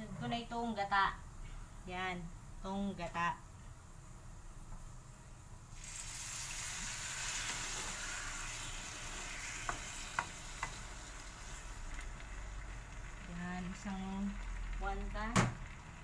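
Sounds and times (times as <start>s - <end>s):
liquid sizzling in a wok: 3.7s - 16.0s.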